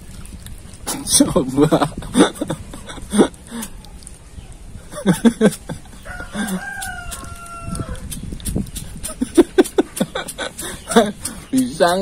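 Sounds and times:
rooster crowing: 6.0 - 8.2.

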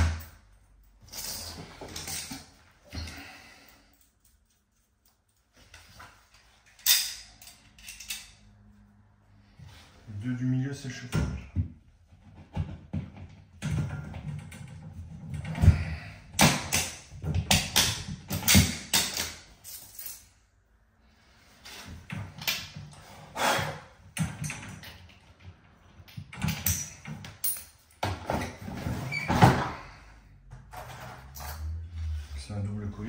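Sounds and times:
metal pipes knocking and scraping: 1.0 - 3.4.

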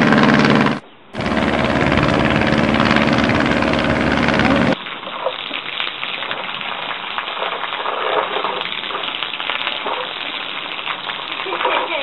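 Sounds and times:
water spattering hiss: 4.4 - 12.0.

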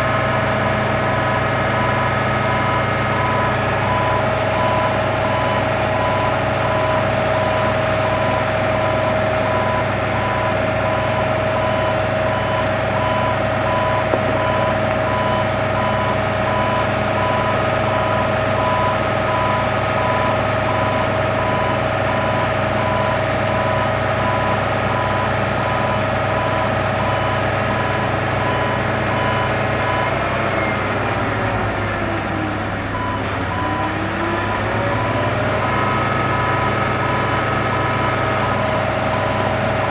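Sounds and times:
engine and hydraulic drone: 0.0 - 39.9
warning beeper beeping: 1.8 - 21.0.

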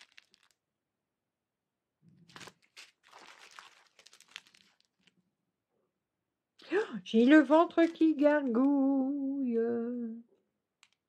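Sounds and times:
plastic sachets crinkling: 0.0 - 0.7, 2.1 - 5.2, 7.4 - 8.8, 10.8 - 11.0.

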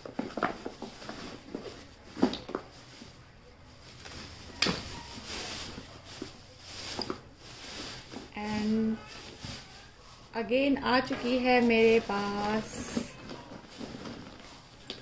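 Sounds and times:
plastic bags rustling: 0.0 - 15.0.

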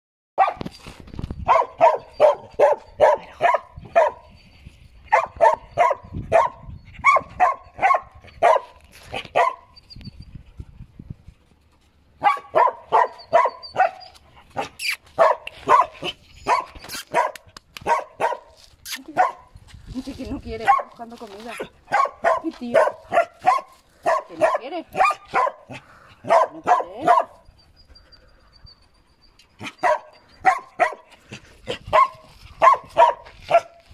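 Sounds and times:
puppy barking: 0.4 - 0.7, 1.5 - 4.3, 5.1 - 9.8, 12.2 - 18.6, 19.2 - 19.5, 20.6 - 27.4, 29.6 - 31.1, 31.9 - 33.8.

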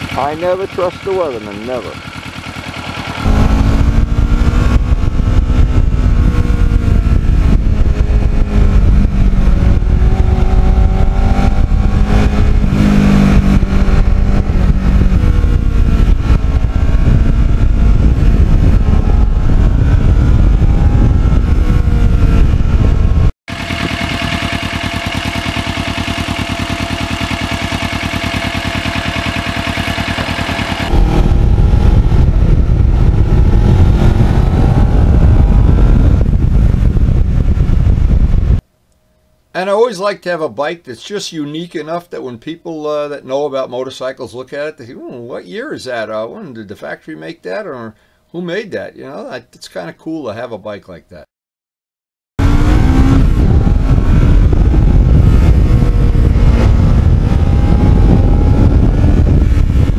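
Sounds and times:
motorcycle engine revving: 0.0 - 38.6, 52.4 - 59.9.

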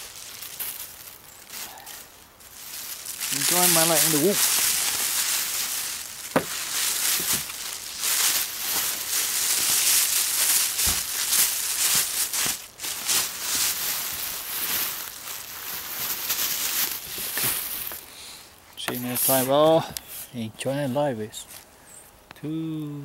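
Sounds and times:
plastic bag crinkling: 0.0 - 18.1.

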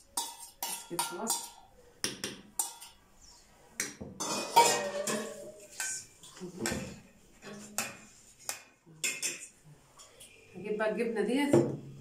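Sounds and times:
metal kitchenware clattering: 0.0 - 3.0, 4.1 - 7.9.

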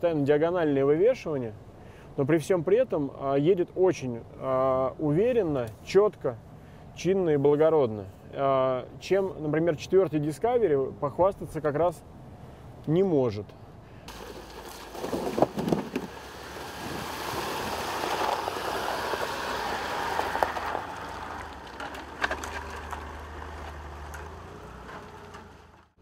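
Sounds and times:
water and mud splashing under tyres: 14.1 - 25.8
low engine hum: 14.1 - 26.0.

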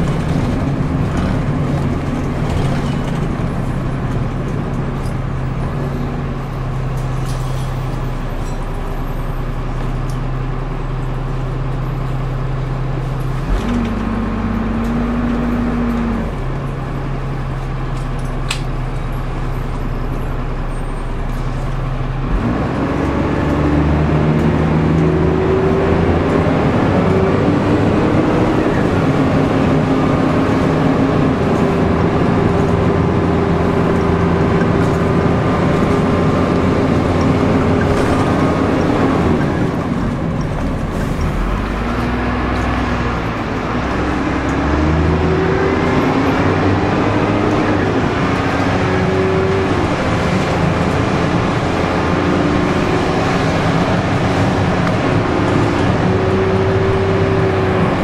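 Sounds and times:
bus diesel engine running: 0.0 - 58.0.

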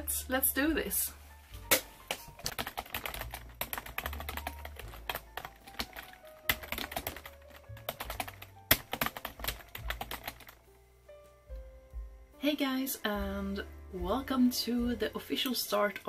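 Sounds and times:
background music: 0.0 - 16.0
keyboard typing clicks: 1.7 - 10.5.

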